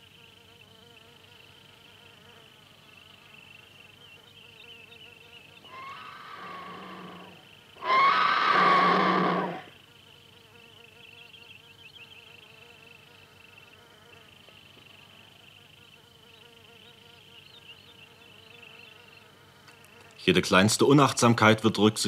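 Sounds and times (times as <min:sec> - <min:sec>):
high-pitched insect buzz: 0:00.0 - 0:20.2
vultures squealing calls: 0:05.7 - 0:09.7.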